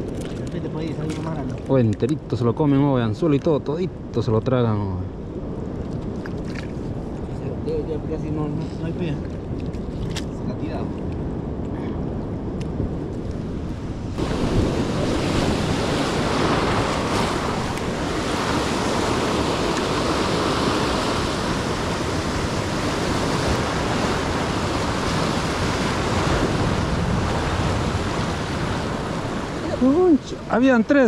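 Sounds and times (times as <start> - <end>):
ocean surf breaking on rocks: 13.1 - 31.0.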